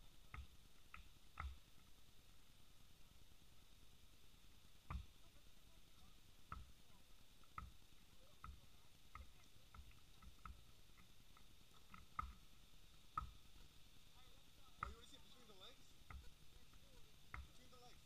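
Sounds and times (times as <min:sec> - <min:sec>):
basketball bouncing on plastic court: 0:06.5 - 0:06.8, 0:17.3 - 0:17.6.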